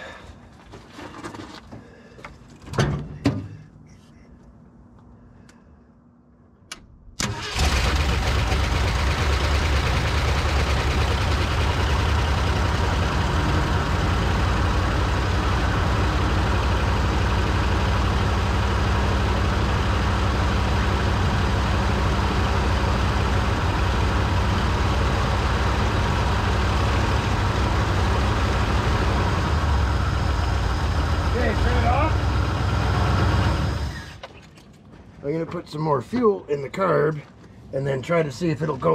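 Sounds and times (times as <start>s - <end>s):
ignition clicks: 6.7s - 7.6s
truck engine starting and running: 6.7s - 36.7s.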